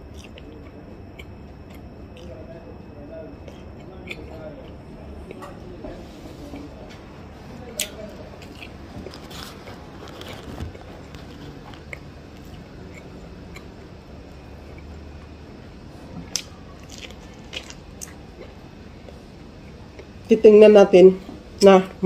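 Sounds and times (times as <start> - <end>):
wet chewing: 0.0 - 2.5, 3.3 - 7.0, 7.6 - 15.0, 16.2 - 20.2
biting corn kernels: 0.1 - 2.4, 3.4 - 5.6, 7.7 - 13.8, 16.3 - 19.2.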